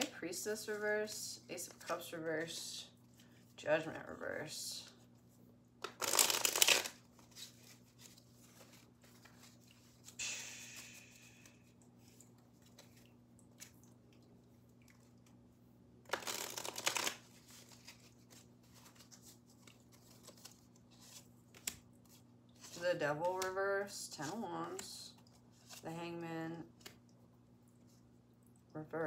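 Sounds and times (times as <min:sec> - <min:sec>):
cards being shuffled: 0:05.8 - 0:13.0, 0:16.1 - 0:24.9.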